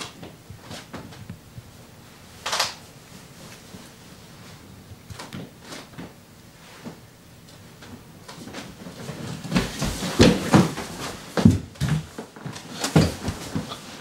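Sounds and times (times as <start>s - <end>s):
people scuffling with thumps: 7.8s - 14.0s.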